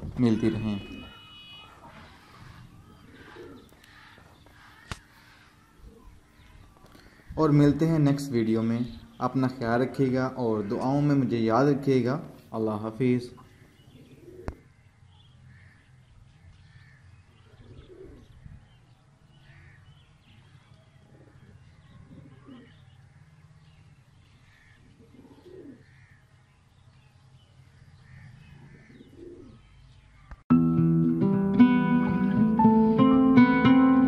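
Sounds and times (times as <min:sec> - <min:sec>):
faint bird chirping: 0:00.2 - 0:11.4, 0:12.4 - 0:30.4
pigeons cooing softly: 0:00.5 - 0:11.8, 0:13.3 - 0:14.8, 0:16.8 - 0:26.3, 0:27.6 - 0:30.4.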